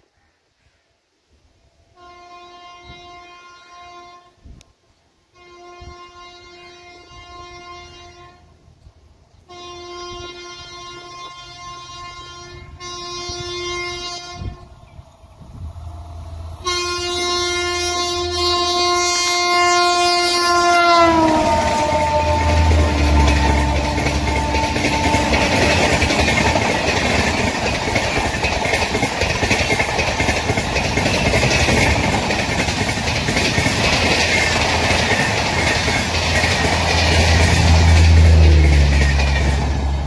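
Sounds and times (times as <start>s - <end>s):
locomotive horn blasts: 1.9s - 4.5s, 5.3s - 8.5s, 9.5s - 14.8s, 16.6s - 26.8s
train rumble: 7.0s - 40.0s.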